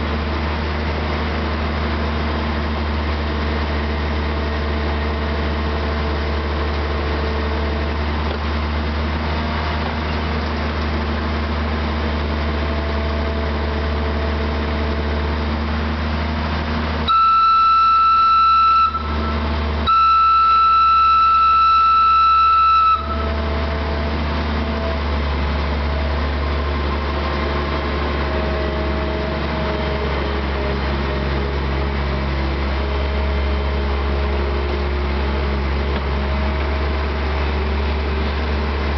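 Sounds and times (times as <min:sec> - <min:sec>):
diesel locomotive engine drone: 0:00.0 - 0:38.9
locomotive horn blasts: 0:17.0 - 0:24.9.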